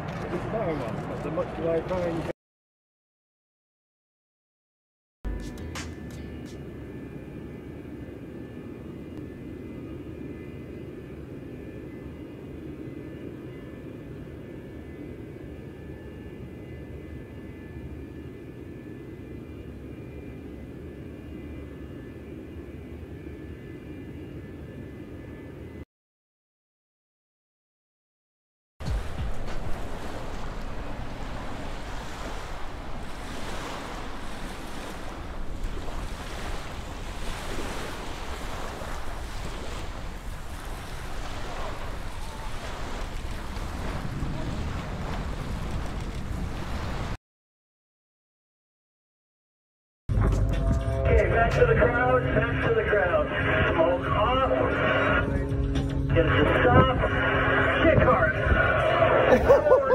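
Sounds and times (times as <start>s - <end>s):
faint high engine whine: 5.3s - 25.8s
jet engines rumbling: 28.8s - 46.7s
wind buffeting microphone: 28.8s - 47.2s.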